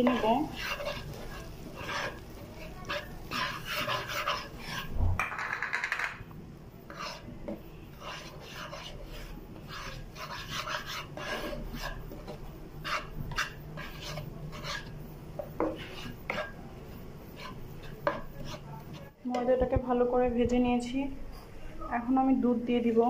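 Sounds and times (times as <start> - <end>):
metal spatula scraping frying pan: 0.0 - 5.0, 6.9 - 16.6, 17.3 - 19.1.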